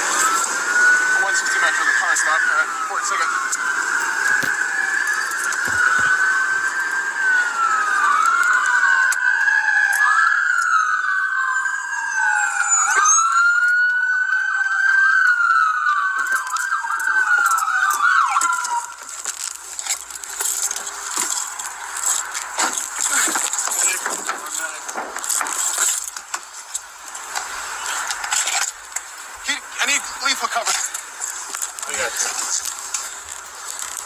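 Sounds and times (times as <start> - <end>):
police sirens wailing: 0.0 - 34.0
knocks and clatter: 22.6 - 26.4.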